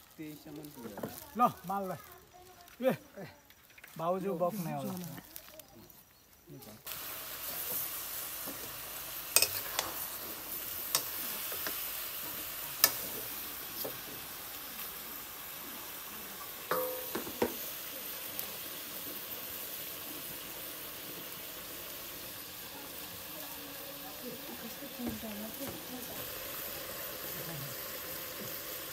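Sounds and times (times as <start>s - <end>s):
meat sizzling in a wok: 0.0s - 28.9s
metal spatula scraping a pan: 9.3s - 11.8s.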